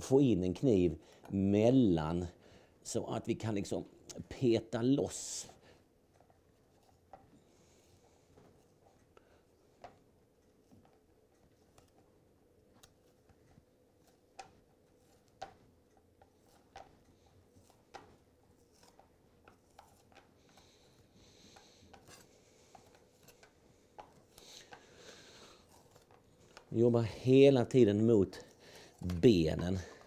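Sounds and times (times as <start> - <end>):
soft rasping strokes: 12.8 - 30.0.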